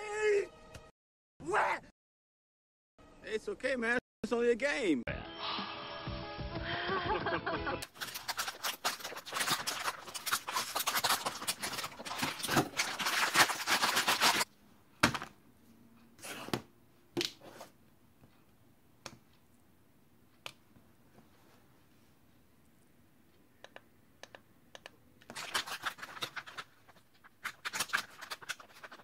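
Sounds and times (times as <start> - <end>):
plastic packet crinkling: 7.8 - 14.5, 25.3 - 29.0
clicks and taps: 23.6 - 25.0.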